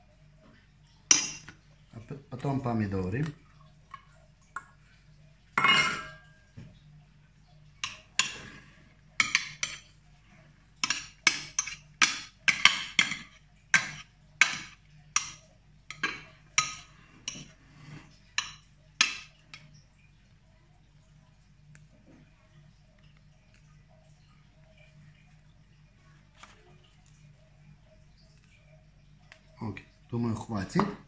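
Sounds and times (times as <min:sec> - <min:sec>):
spoon clinking on glass dish: 0:05.6 - 0:06.4.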